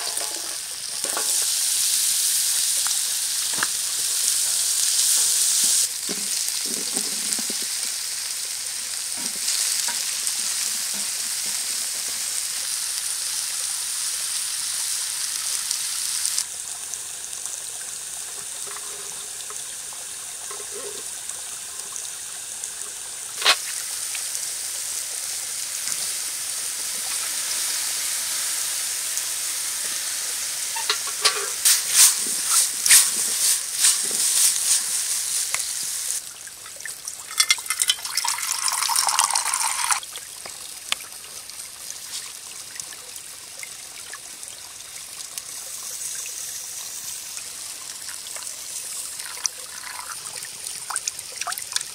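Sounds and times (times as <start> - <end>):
vegetables sizzling in a pan: 0.0 - 36.3, 36.9 - 43.4, 44.4 - 51.2
sauce poured into pan: 36.9 - 40.1, 48.1 - 51.2.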